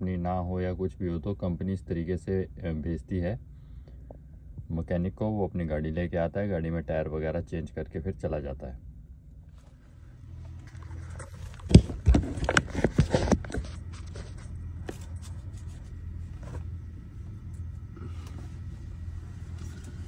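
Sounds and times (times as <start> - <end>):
steady low hum: 0.0 - 20.0
camera handling knocks and rubbing: 10.7 - 17.0.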